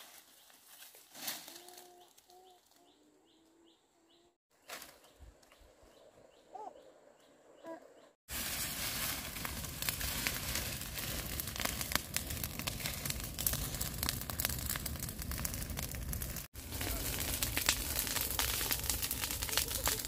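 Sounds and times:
faint bird chirp: 1.5s - 8.2s
dense crackling and rustling: 8.3s - 20.0s.

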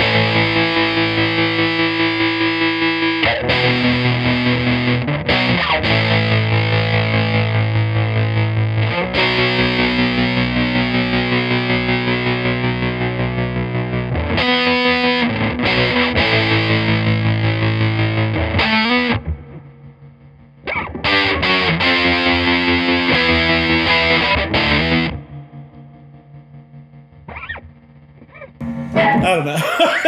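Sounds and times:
distorted electric guitar with tremolo: 0.0s - 30.0s.

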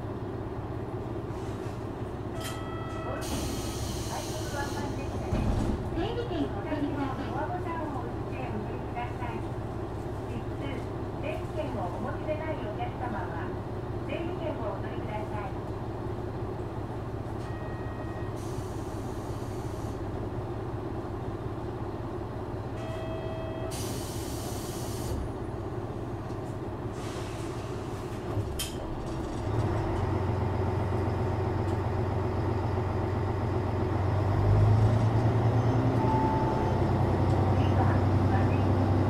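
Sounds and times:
air hissing from brakes: 3.2s - 5.2s, 18.3s - 20.0s, 23.7s - 25.2s, 26.9s - 28.2s.

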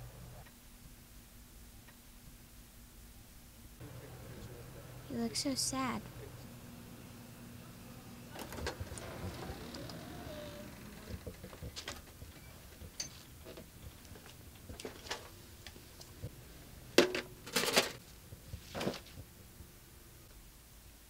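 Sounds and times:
objects being moved: 17.0s - 19.2s.

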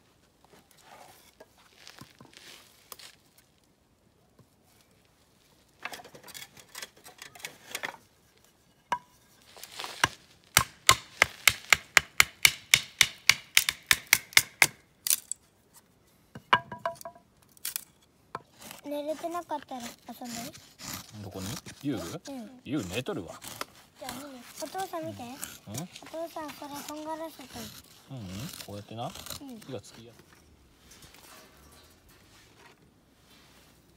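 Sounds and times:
wood rustled and scraped: 0.1s - 3.6s, 4.4s - 11.7s, 17.5s - 33.9s
sharp wooden knocks: 10.6s - 14.8s, 16.3s - 17.2s.

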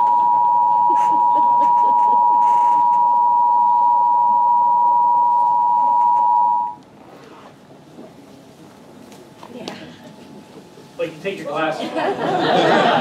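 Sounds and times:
steady test tone: 0.0s - 6.8s.

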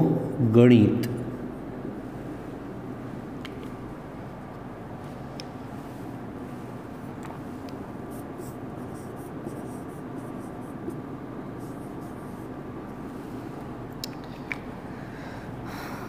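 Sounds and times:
steady background hiss: 0.0s - 16.0s
marker scratching on whiteboard: 8.0s - 12.6s.

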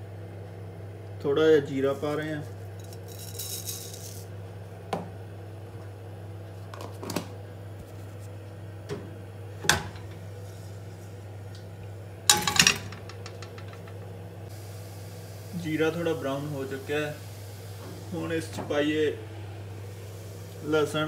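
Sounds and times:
steady low hum: 0.0s - 21.0s
seeds hissing in hot oil: 1.8s - 4.4s, 10.3s - 11.4s, 14.5s - 21.0s.

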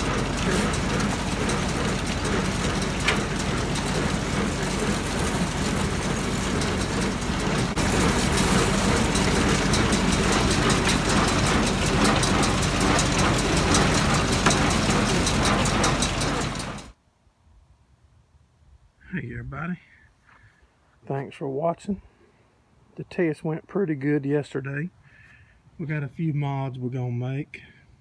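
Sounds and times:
fast clicking rattle: 0.0s - 16.9s
baler machinery clatter: 0.0s - 17.0s
tractor engine hum: 0.0s - 17.0s.

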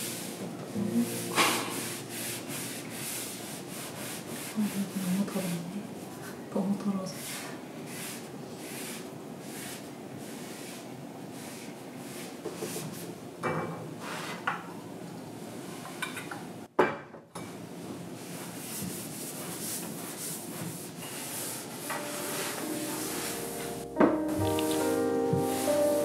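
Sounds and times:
cloth rubbing on hard surface: 0.0s - 6.4s, 7.1s - 13.1s, 18.1s - 26.0s.

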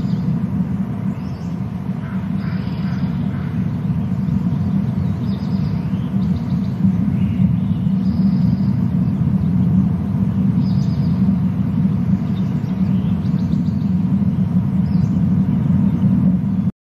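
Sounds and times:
steady low rumble: 0.0s - 16.7s
raptor high trilling calls: 1.1s - 8.9s.

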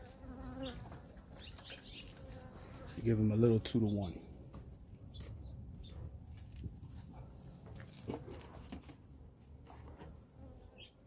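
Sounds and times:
bees buzzing: 0.0s - 3.2s.

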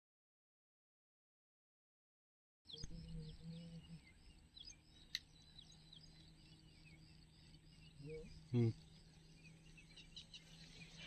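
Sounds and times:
birds chirping: 2.7s - 11.0s.

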